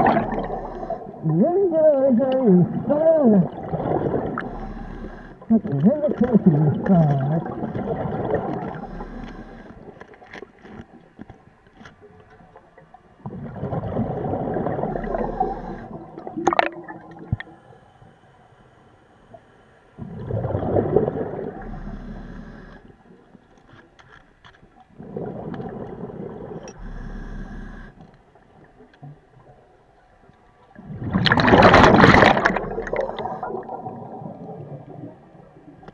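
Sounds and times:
regulator bubbling underwater: 0.0 - 10.0, 13.2 - 17.6, 20.0 - 22.7, 24.9 - 29.6, 30.7 - 35.9.

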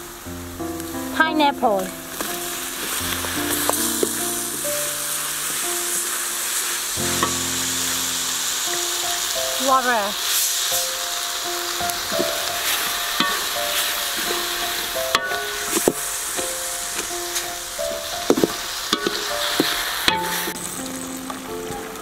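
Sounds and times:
food sizzling in a wok: 0.0 - 22.0
simple melody of held notes: 0.0 - 22.0
spatula scraping a wok: 12.1 - 20.7.

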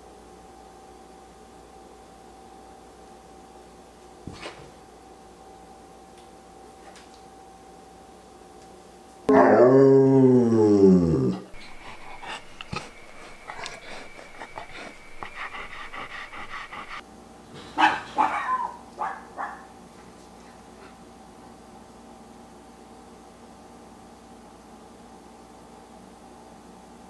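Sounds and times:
dog moaning: 9.3 - 17.0
dog snuffling and breathing: 11.5 - 17.0
dog short sharp calls: 11.6 - 17.0.

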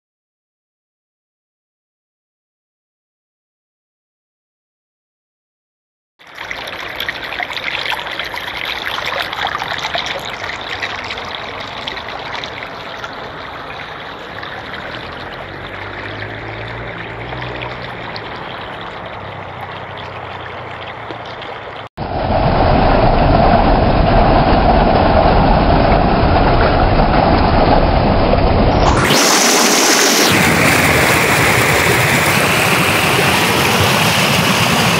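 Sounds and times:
waterfall over rocks: 6.3 - 21.6, 27.9 - 34.9
river water rushing: 6.4 - 22.9, 28.8 - 34.9.

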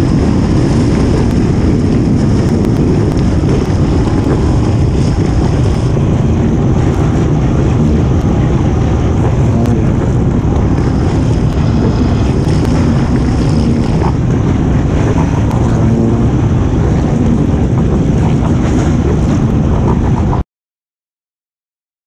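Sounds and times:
wind noise on microphone: 0.0 - 20.4.

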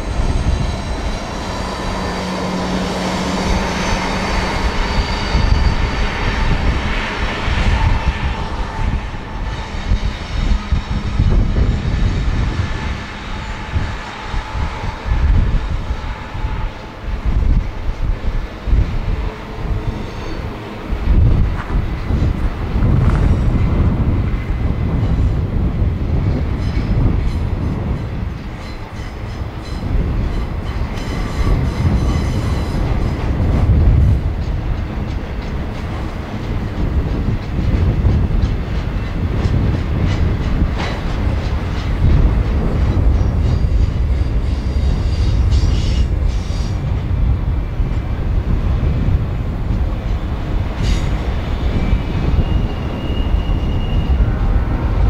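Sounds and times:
rail clicks: 0.0 - 55.0
train wheels rumbling on rail: 0.0 - 55.0
high-pitched wheel squeal: 0.1 - 16.9, 19.5 - 20.6, 50.8 - 54.6.

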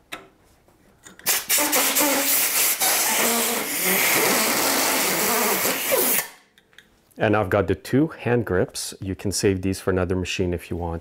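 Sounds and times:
compressed air hissing: 1.3 - 6.3.

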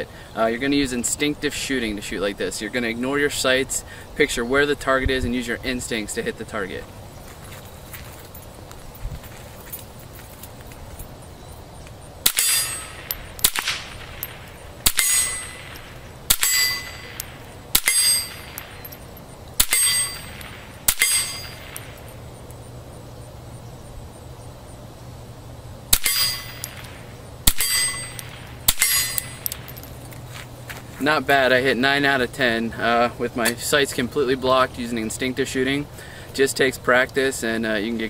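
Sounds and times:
muffled pistol shots: 12.2 - 18.9, 19.6 - 22.0, 25.9 - 29.8.

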